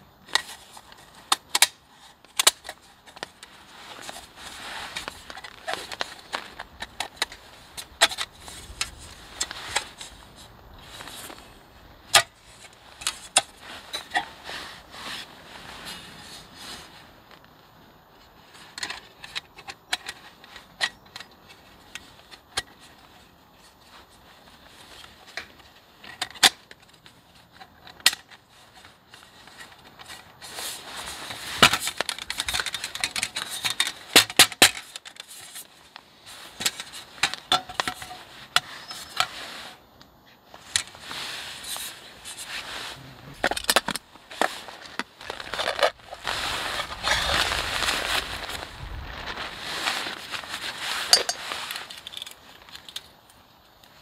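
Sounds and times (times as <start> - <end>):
rustling handling noise: 0.0 - 54.0
metal cook pot handled: 51.1 - 51.4.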